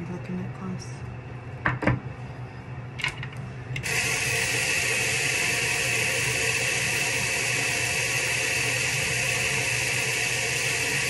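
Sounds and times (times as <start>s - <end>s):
hair dryer blowing: 3.8s - 11.0s.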